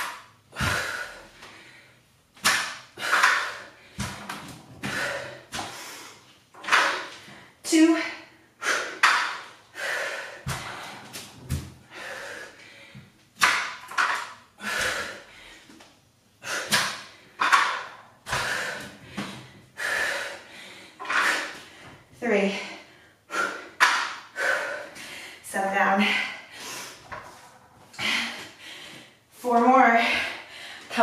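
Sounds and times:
woman breathing heavily: 0:00.0 - 0:13.6, 0:14.5 - 0:31.0
dumbbells thudding on rubber mat: 0:02.4 - 0:05.8, 0:09.0 - 0:09.4, 0:10.4 - 0:11.9.

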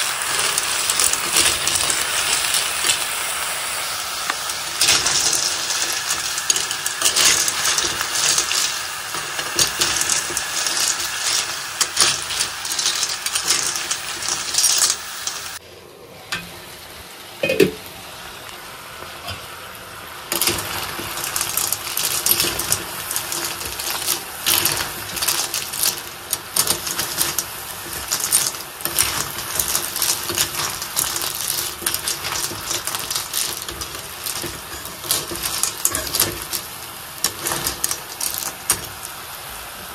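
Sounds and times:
shells clattering against a pan: 0:00.0 - 0:03.2, 0:04.2 - 0:15.6, 0:20.3 - 0:39.1
oil sizzling: 0:00.0 - 0:15.6, 0:16.4 - 0:39.9
spoon stirring in a pan: 0:20.3 - 0:39.1.

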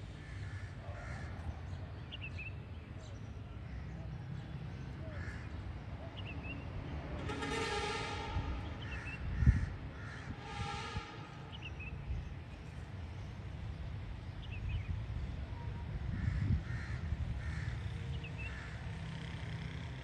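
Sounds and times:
crow cawing: 0:00.2 - 0:01.4, 0:16.2 - 0:17.8.

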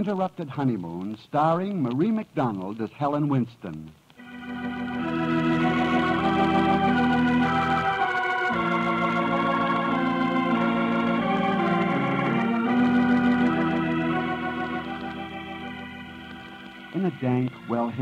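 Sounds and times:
organ playing held chords: 0:04.2 - 0:18.0.

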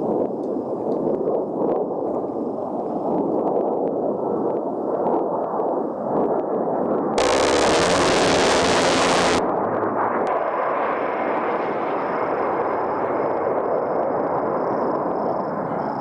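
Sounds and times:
rotary cannon firing: 0:07.2 - 0:09.4
steady rushing noise: 0:07.2 - 0:09.4.

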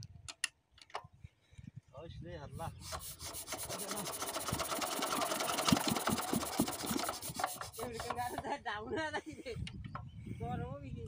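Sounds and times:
diesel engine being hand-cranked: 0:02.8 - 0:08.6.

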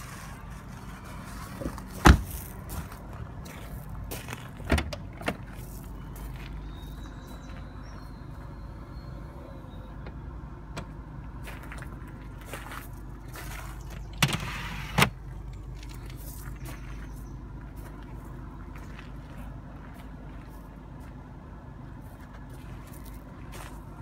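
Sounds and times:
low steady rumble: 0:00.0 - 0:24.0
car door shutting: 0:01.6 - 0:02.4, 0:04.6 - 0:05.4
tailgate thump and click: 0:01.6 - 0:02.4, 0:04.6 - 0:05.4.

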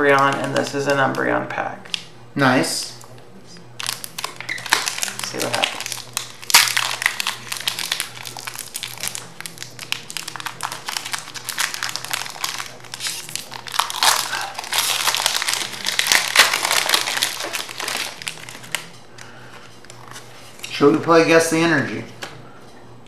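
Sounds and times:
foil wrapper crinkling: 0:03.8 - 0:20.8.

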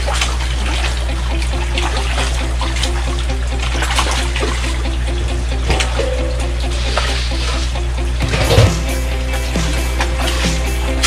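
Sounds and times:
pipe pouring into water: 0:00.0 - 0:08.7
fish splashing: 0:00.0 - 0:11.0
steady low hum: 0:00.0 - 0:11.0.

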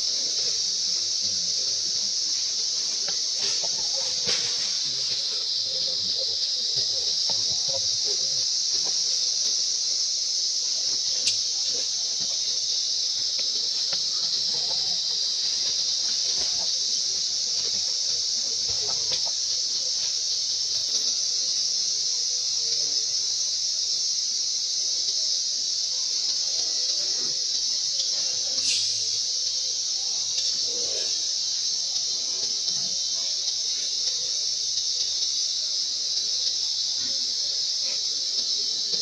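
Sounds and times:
insects droning: 0:00.0 - 0:39.0.

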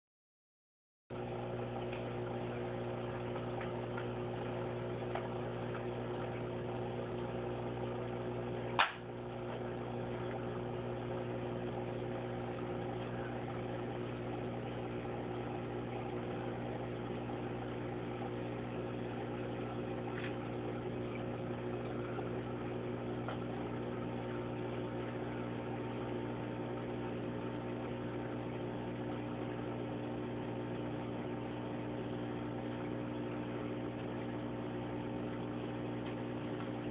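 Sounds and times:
aquarium equipment hum: 0:01.1 - 0:36.9
sharp click: 0:08.8 - 0:09.1.

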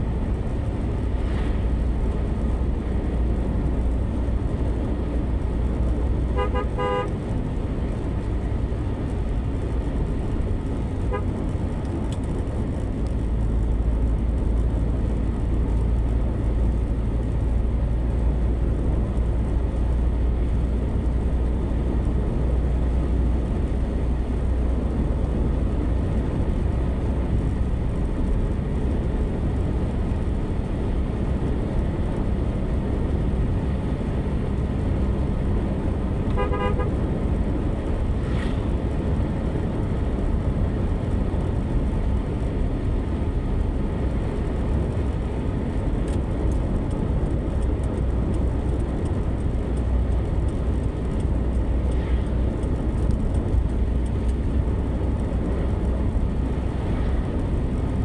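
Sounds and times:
car cabin road and engine rumble: 0:00.0 - 0:58.0
vehicle horn toots: 0:06.3 - 0:07.2, 0:11.1 - 0:11.3, 0:36.3 - 0:37.0.

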